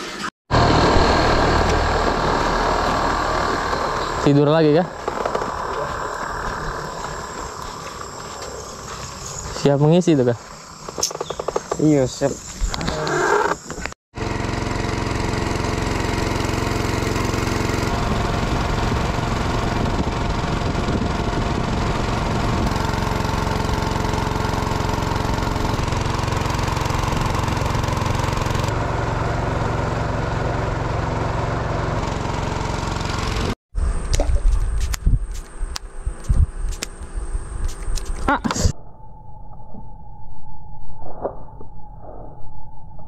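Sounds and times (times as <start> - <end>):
small boat engine running: 0.5 - 9.2, 13.3 - 34.7.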